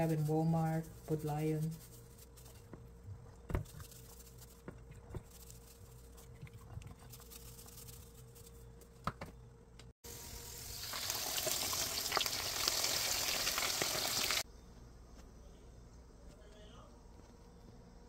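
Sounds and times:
oil sizzling in a wok: 10.1s - 14.4s.

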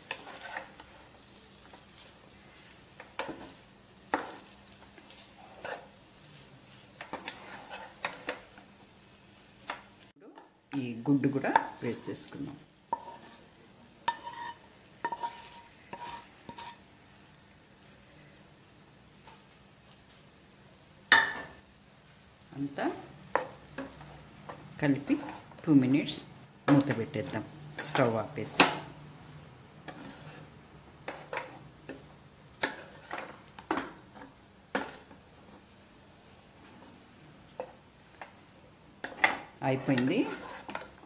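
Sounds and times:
spatula scraping metal pan: 0.0s - 2.1s, 2.9s - 6.0s, 7.0s - 8.4s, 12.9s - 13.5s, 14.1s - 16.9s, 23.3s - 25.6s, 29.8s - 35.2s, 39.0s - 41.0s
faint steady hiss: 0.0s - 41.0s.

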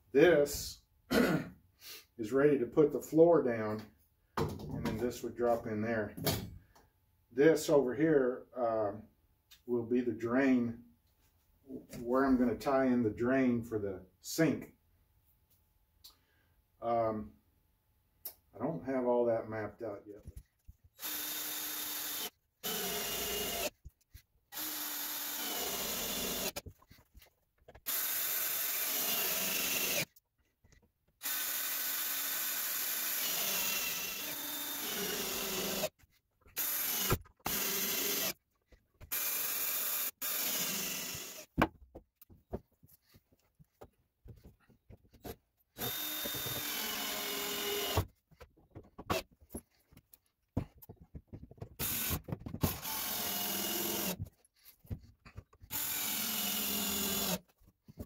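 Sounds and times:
cordless drill drilling into wood: 21.0s - 23.8s, 24.5s - 26.6s, 27.8s - 30.1s, 31.2s - 35.9s, 36.6s - 38.4s, 39.1s - 41.5s, 45.8s - 48.1s, 51.8s - 54.3s, 55.6s - 57.5s
handling clicks and knocks: 48.1s - 52.8s.

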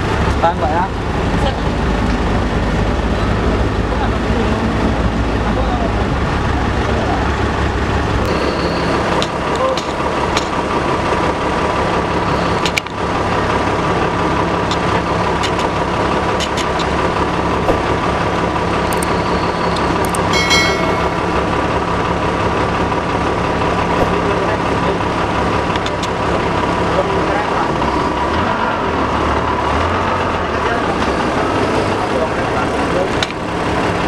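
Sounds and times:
large engine idling: 0.0s - 34.0s
high-pitched squeal: 8.3s - 9.2s.

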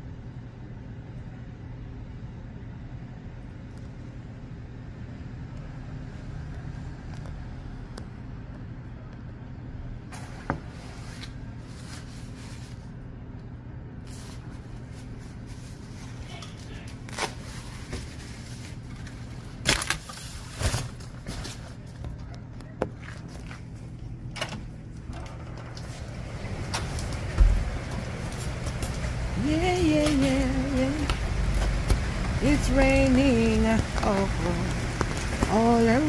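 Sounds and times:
traffic on wet street: 5.4s - 8.1s, 25.8s - 36.0s
rain: 25.7s - 36.0s.

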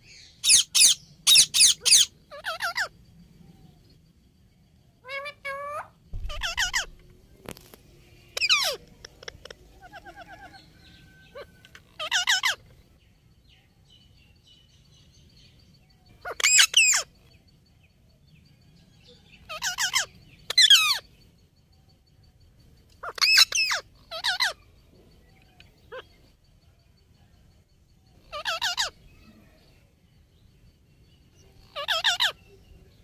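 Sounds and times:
parakeets calling: 0.0s - 2.9s, 5.0s - 7.1s, 8.2s - 12.8s, 16.2s - 17.4s, 19.3s - 21.2s, 23.0s - 24.8s, 25.4s - 26.3s, 28.1s - 29.3s, 31.6s - 32.6s.

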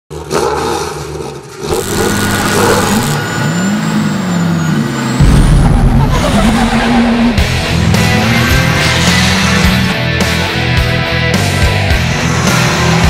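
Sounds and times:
car engine revving: 0.1s - 13.0s
heavy low boom: 5.2s - 8.0s.

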